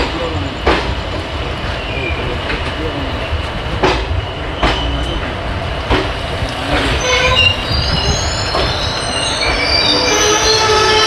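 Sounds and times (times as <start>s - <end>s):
train coaches running over rails: 0.0s - 11.0s
squeal of train wheels and brakes: 1.6s - 3.3s, 3.9s - 5.4s, 6.6s - 11.0s.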